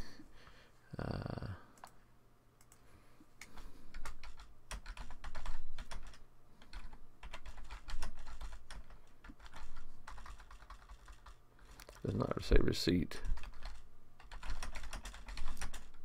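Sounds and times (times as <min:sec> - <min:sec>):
computer keyboard typing: 0:03.4 - 0:12.3, 0:13.2 - 0:16.0.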